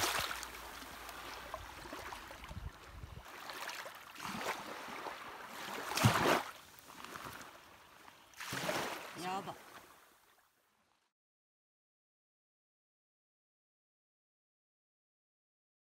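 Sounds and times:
shallow water sloshing and splashing: 0:00.0 - 0:10.3.

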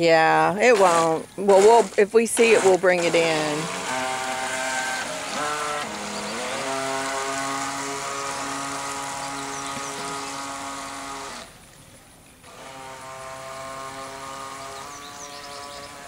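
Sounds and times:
toy boat electric motor whining: 0:00.6 - 0:11.6, 0:12.4 - 0:16.0.

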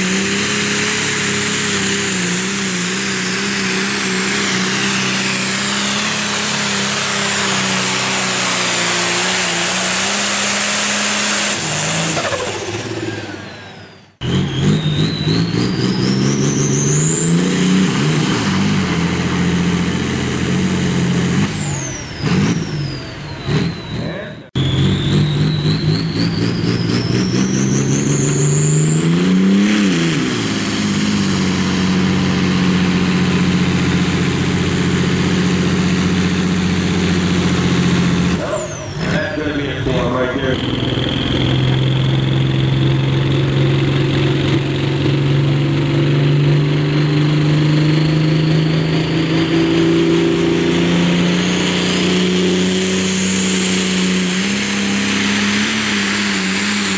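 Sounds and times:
high engine whine: 0:00.0 - 0:56.9
tractor diesel engines revving: 0:00.0 - 0:56.9.

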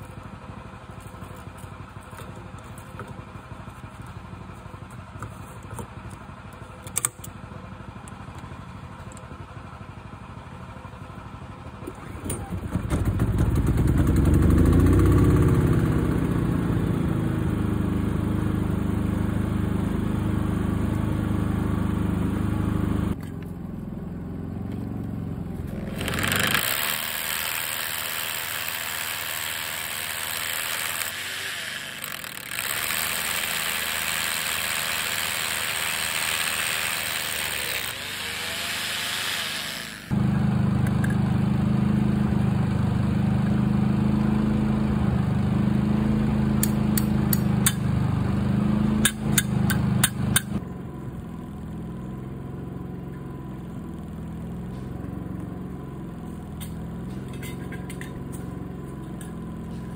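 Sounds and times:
engine humming: 0:00.0 - 0:59.9
electric drill mixing concrete: 0:25.7 - 0:40.2.

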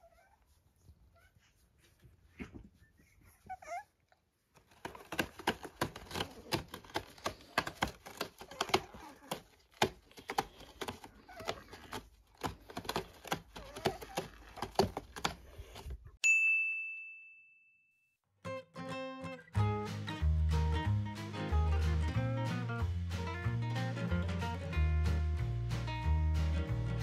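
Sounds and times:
crackling and crunching clicks: 0:04.5 - 0:15.9
bright ding: 0:16.2 - 0:18.1.

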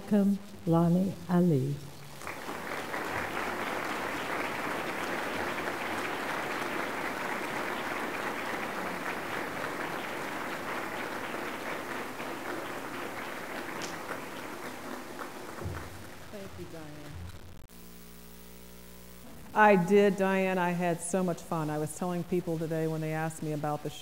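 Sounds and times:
audience applauding: 0:02.1 - 0:17.2.

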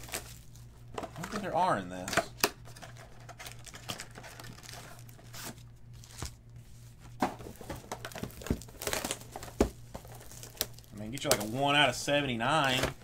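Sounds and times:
wrappers tearing and crinkling: 0:00.0 - 0:01.5, 0:02.8 - 0:06.4, 0:07.9 - 0:11.7, 0:12.6 - 0:13.0
steady low hum: 0:00.0 - 0:13.0.

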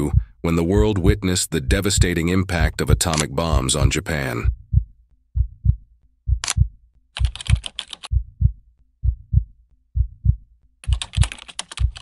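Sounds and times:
heartbeat thumps: 0:00.0 - 0:12.0
rapid typing clicks: 0:07.2 - 0:08.1, 0:10.8 - 0:12.0.

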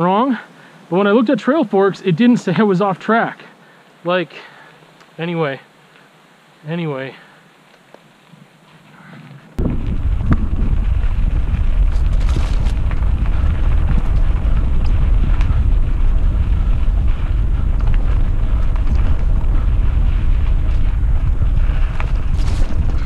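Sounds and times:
bike clicks and rattles: 0:09.0 - 0:23.0
wind and trail vibration rumble: 0:09.3 - 0:23.0.

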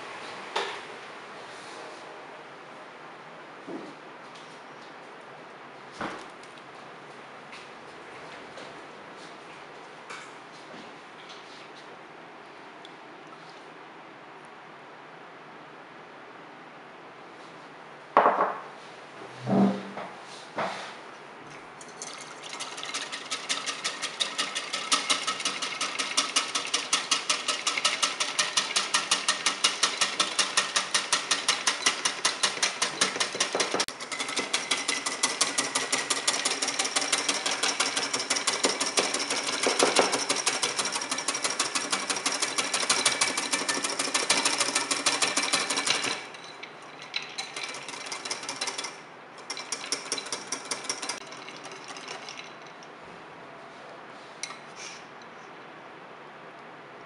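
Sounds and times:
whisk beating against bowl: 0:21.8 - 0:52.7.

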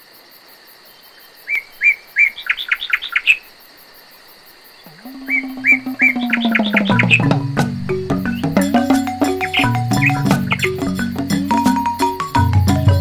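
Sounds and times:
songbird singing: 0:00.9 - 0:03.6, 0:04.5 - 0:13.0
high-pitched drone: 0:05.0 - 0:11.0.

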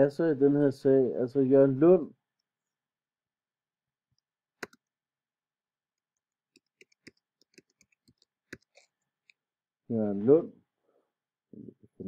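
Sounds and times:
computer keyboard keystrokes: 0:06.5 - 0:09.4.

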